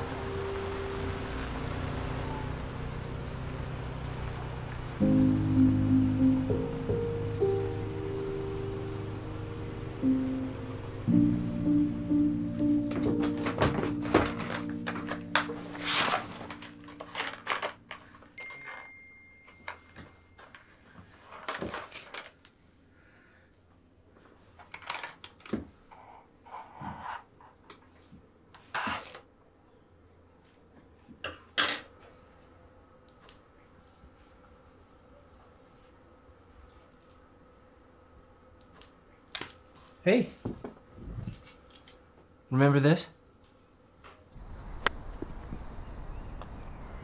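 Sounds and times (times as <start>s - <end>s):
soft score music: 0.0s - 20.5s
faint room hum: 0.0s - 47.0s.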